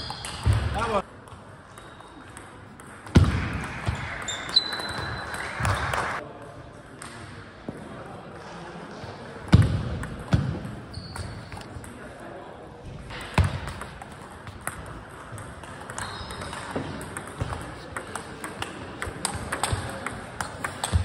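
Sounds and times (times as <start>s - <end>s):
table tennis ball hits: 0.0s - 6.2s, 13.1s - 21.0s.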